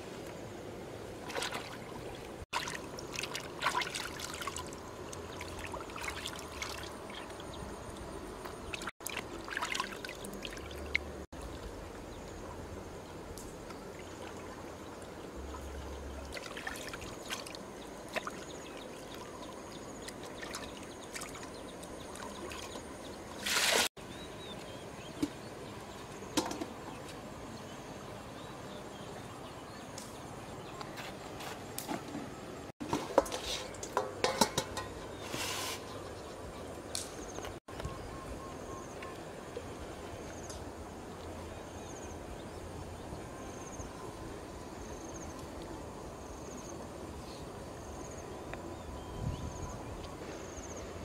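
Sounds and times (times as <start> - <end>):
water splashing in a metal bowl: 1.2 - 7.4, 8.5 - 11.6, 16.1 - 23.9.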